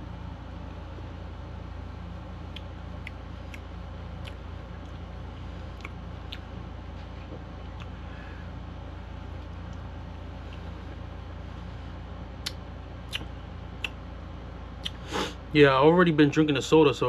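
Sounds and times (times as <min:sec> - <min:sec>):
steady low hum: 0:00.0 - 0:17.0
wet mouth clicks and lip smacks: 0:02.5 - 0:05.0, 0:05.8 - 0:06.5, 0:12.4 - 0:14.0, 0:14.8 - 0:15.0.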